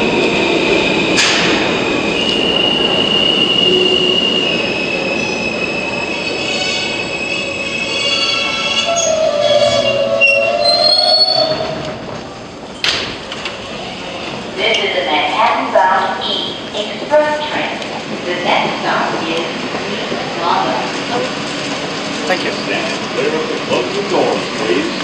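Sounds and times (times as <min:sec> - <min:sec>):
train rumble: 0:00.0 - 0:25.0
train wheels squealing on rails: 0:00.8 - 0:11.8.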